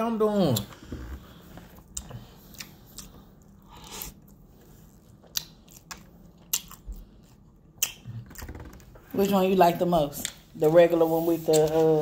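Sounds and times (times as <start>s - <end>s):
man chewing food: 0.6s - 8.8s
mouth clicks and crunches: 5.2s - 8.8s.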